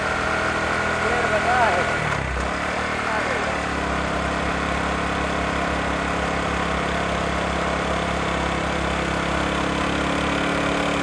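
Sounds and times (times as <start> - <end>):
motorcycle engine running steadily: 0.0 - 11.0.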